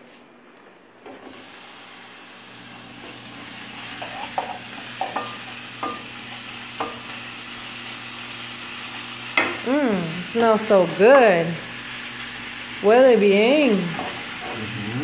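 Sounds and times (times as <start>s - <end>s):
meat sizzling in frying pan: 1.2s - 15.0s.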